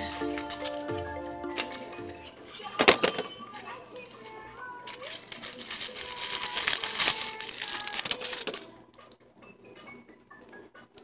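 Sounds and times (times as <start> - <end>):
hairpiece rustling and crackling: 1.5 - 9.2.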